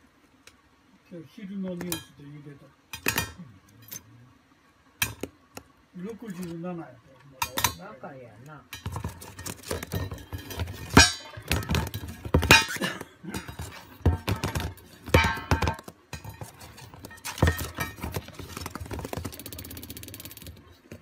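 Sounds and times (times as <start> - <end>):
dish knocking on cardboard: 8.8 - 12.8, 13.4 - 19.1.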